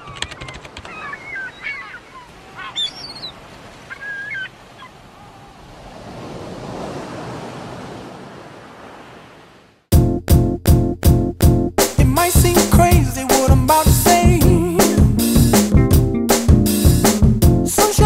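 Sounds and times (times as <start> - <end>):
quick clicks: 0.0 - 1.0
bird calls bending in pitch: 0.0 - 5.0
surf rushing: 1.0 - 9.8.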